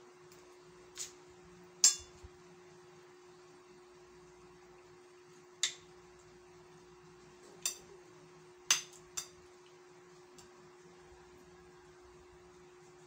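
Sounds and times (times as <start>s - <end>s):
faint steady hum: 0.0s - 13.0s
spoon clinking on ceramic plates: 1.8s - 2.2s, 8.7s - 9.4s.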